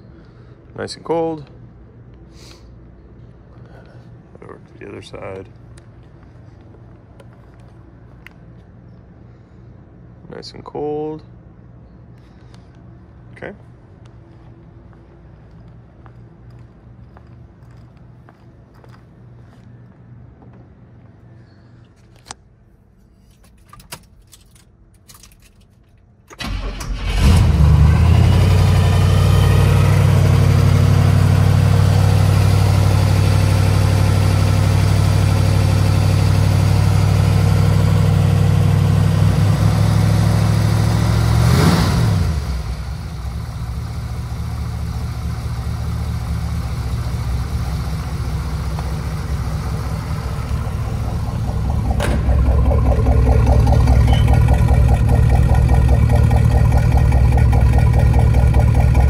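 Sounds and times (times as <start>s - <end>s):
car engine cranking and idling: 16.1s - 19.0s, 23.3s - 59.0s.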